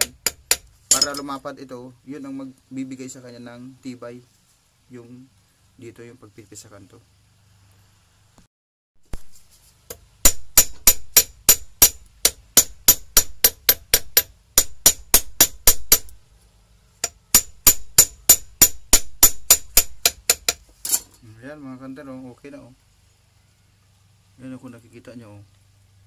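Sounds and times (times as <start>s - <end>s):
hammer tapping metal rod: 0.0s - 1.3s, 10.3s - 16.2s, 17.0s - 20.6s.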